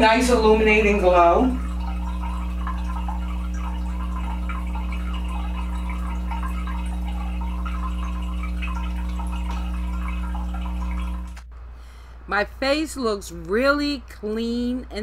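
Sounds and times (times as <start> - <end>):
water dripping: 0.0 - 11.5
steady low hum: 0.0 - 15.0.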